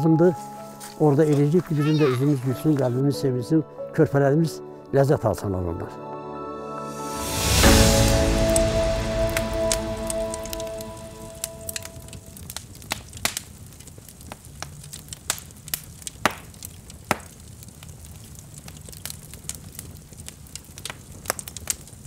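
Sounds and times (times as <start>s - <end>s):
music: 0.0s - 12.6s
low rustle of flames: 7.0s - 22.0s
bonfire pops and snaps: 11.6s - 22.0s.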